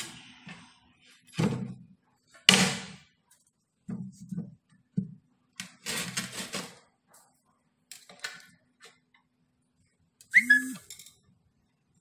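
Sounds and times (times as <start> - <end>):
short high-pitched cry: 10.3 - 10.9.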